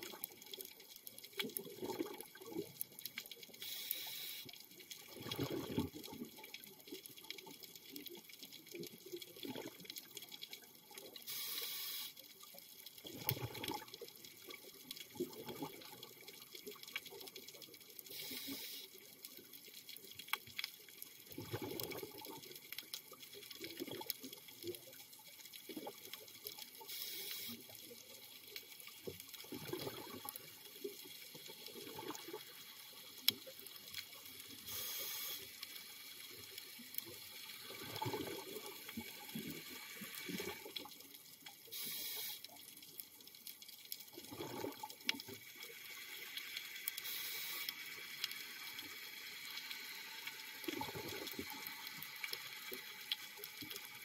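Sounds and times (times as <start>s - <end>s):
faint crackle of clicks: 0.0s - 54.0s
exhaled bubbles burbling: 1.5s - 2.8s, 5.1s - 6.4s, 9.3s - 9.9s, 13.0s - 14.0s, 15.1s - 16.2s, 21.3s - 22.5s, 23.6s - 24.1s, 29.4s - 30.5s, 31.8s - 32.4s, 37.6s - 39.6s, 44.1s - 45.4s, 50.6s - 51.6s
regulator hissing inhalations: 3.6s - 4.5s, 11.3s - 12.2s, 18.1s - 18.9s, 26.9s - 27.6s, 34.7s - 35.6s, 41.7s - 42.4s, 47.0s - 47.7s.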